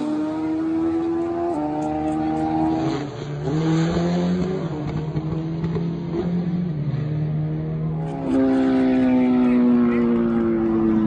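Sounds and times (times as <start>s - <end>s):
motorcycle engine at high revs: 0.0s - 11.0s
louder engine falling in pitch: 7.9s - 11.0s.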